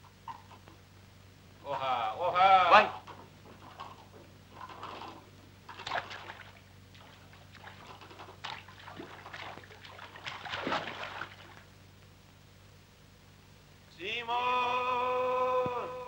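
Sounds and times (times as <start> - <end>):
water splashing in river: 5.7 - 11.7.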